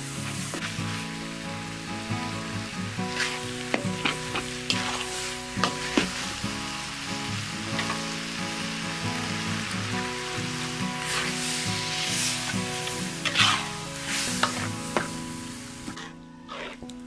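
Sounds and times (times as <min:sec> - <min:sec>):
meat sizzling in a wok: 0:00.0 - 0:17.0
metal spatula scraping a pan: 0:03.0 - 0:06.2, 0:11.0 - 0:15.1, 0:15.8 - 0:16.9.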